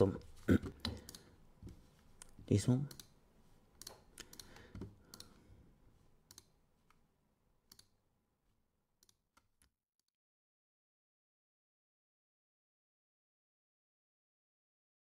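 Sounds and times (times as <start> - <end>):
computer mouse clicks: 0.8 - 3.2, 3.8 - 5.4, 6.3 - 7.0, 7.7 - 8.0, 9.0 - 10.1.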